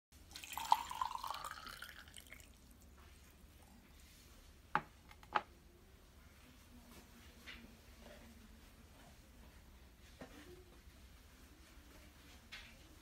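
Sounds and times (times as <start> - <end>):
hot water pouring into mug: 0.2 - 2.8.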